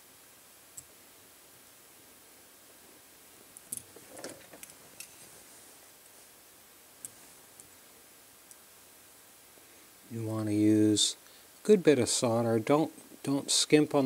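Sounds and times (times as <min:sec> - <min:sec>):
faint clicks of small parts: 0:03.5 - 0:05.3, 0:07.0 - 0:07.7.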